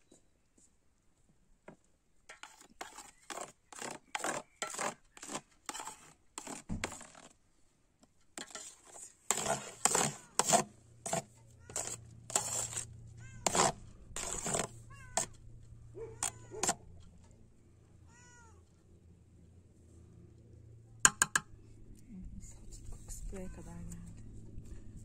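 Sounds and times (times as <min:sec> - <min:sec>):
short scraping strokes: 0:02.3 - 0:07.3, 0:08.4 - 0:15.4
low steady hum: 0:09.0 - 0:25.0.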